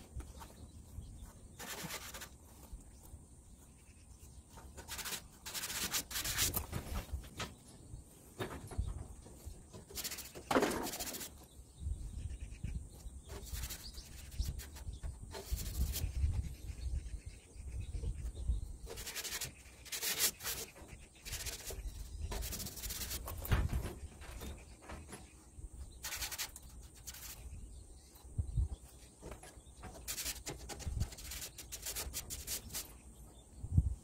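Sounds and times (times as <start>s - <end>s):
hand rubbing on cement siding: 0.0s - 3.8s, 4.4s - 7.2s, 9.8s - 11.4s, 13.4s - 16.5s, 18.9s - 27.6s, 28.8s - 33.0s.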